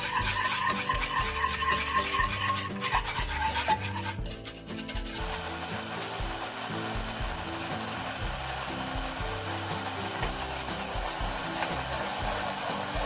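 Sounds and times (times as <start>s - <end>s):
wire whisk scraping a saucepan: 0.0s - 13.0s.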